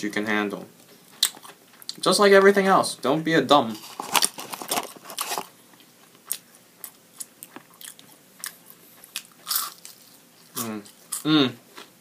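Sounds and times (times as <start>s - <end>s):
person chewing food: 1.1s - 2.0s, 3.8s - 12.0s.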